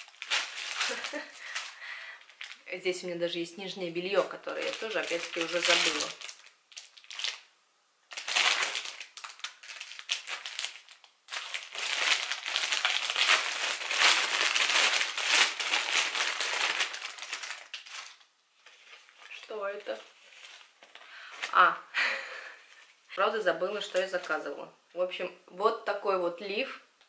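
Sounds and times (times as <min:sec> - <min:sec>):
plastic packaging crinkling: 0:00.0 - 0:03.0, 0:04.0 - 0:07.5, 0:08.1 - 0:21.7.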